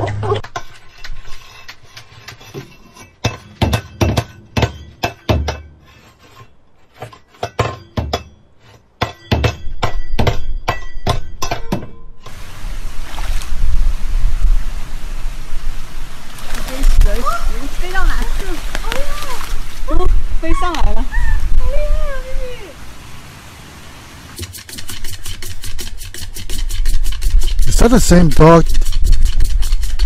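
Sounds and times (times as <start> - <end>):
water rushing: 12.3 - 24.4.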